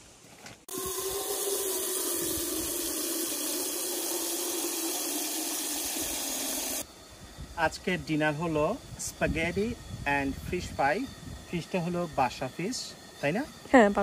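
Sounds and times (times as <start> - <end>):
water pouring into a pot: 0.7 - 6.8.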